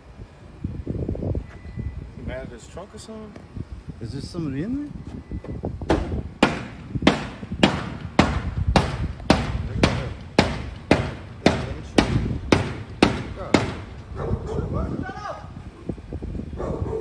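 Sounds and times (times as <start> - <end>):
sharp bangs on car body: 5.9 - 14.0.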